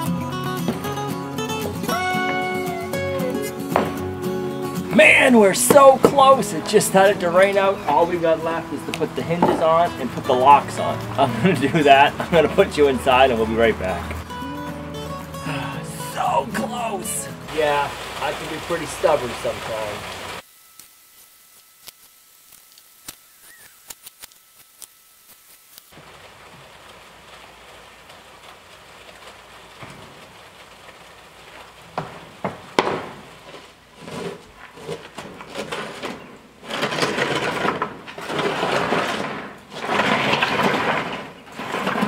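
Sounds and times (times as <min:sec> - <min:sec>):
heavy wooden knocks: 0:09.0 - 0:10.2, 0:31.9 - 0:33.3
rough rustling noise: 0:16.0 - 0:42.0.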